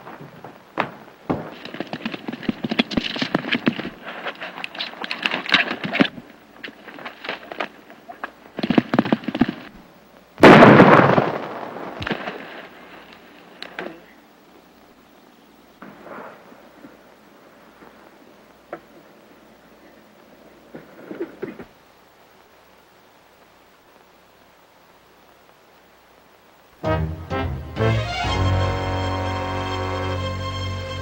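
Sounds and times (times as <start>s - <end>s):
galloping horse hoofbeats: 0.0s - 9.8s
loud gunshot: 10.4s - 12.4s.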